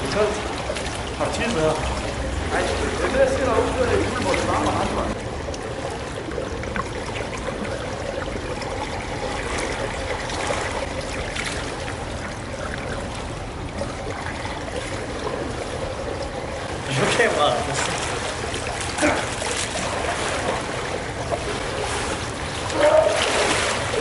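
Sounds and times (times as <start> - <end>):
faint small splashes: 0.0 - 24.0
pool water lapping and trickling: 0.0 - 24.0.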